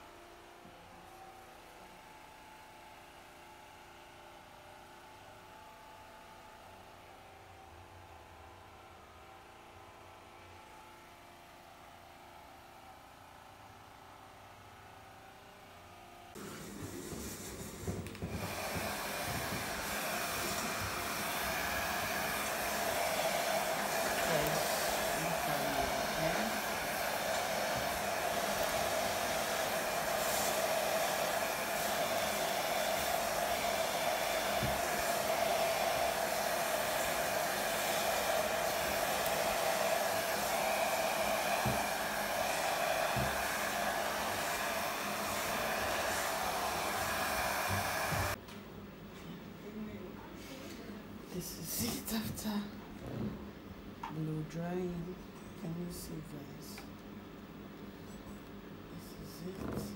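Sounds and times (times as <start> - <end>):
hair dryer running: 16.4 - 48.4.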